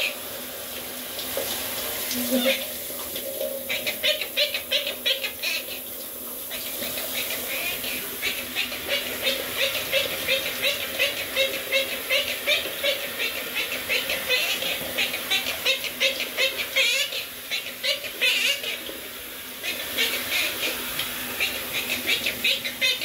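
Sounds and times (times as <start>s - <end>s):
running shower hiss: 0.0s - 23.0s
parrot chattering chirps: 2.2s - 2.7s, 3.7s - 5.8s, 6.5s - 18.8s, 21.4s - 23.0s.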